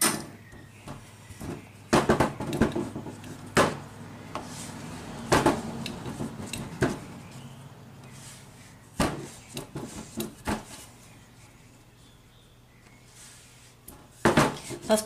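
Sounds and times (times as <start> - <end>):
hands handling dough: 0.5 - 11.9.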